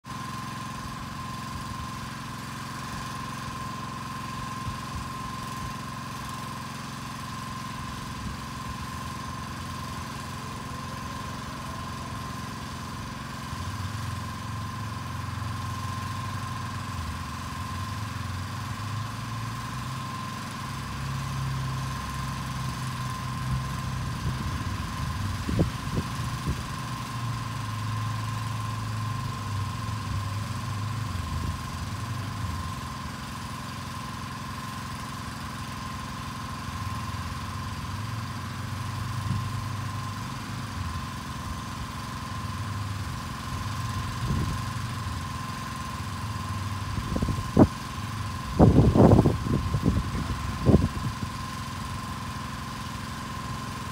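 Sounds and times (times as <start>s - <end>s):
engine running: 0.0s - 53.9s
high whine: 46.8s - 51.2s.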